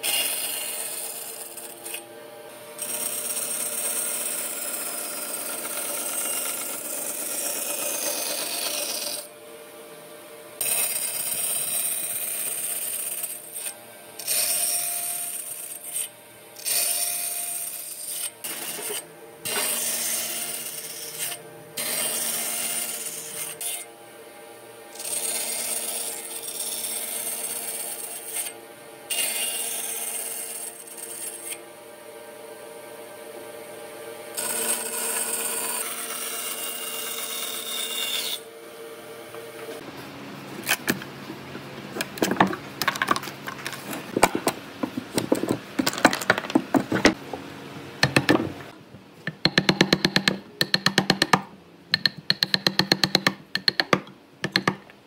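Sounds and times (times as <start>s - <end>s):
loud wood cutting noise: 0.0s - 48.8s
knocks and taps on wood: 48.0s - 48.6s, 49.3s - 54.8s.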